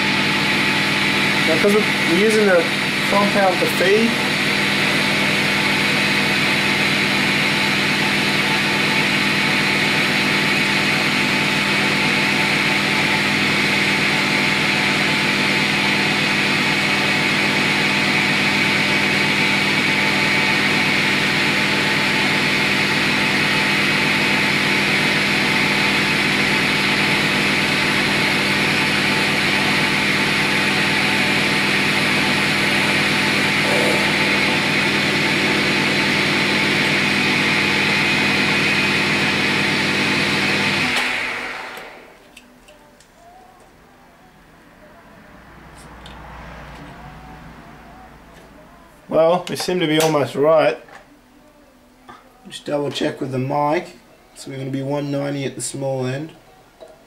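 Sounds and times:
metal lathe running: 0:00.0 - 0:42.5.

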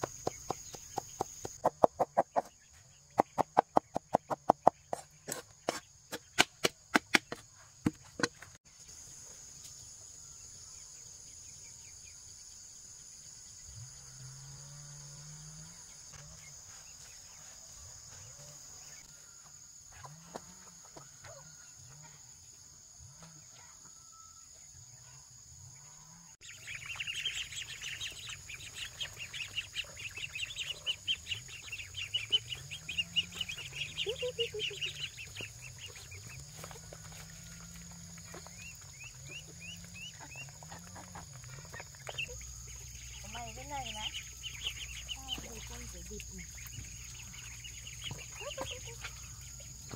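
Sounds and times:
poultry flock chirping: 0:25.8 - 0:49.9.

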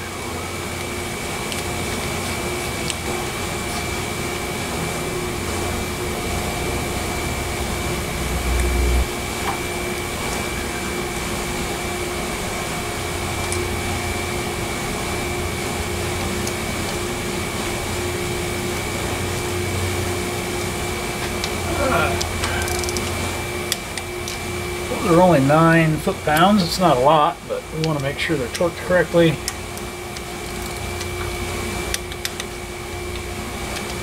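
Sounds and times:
low rumble: 0:07.6 - 0:09.2
motor whirring: 0:13.3 - 0:27.0.

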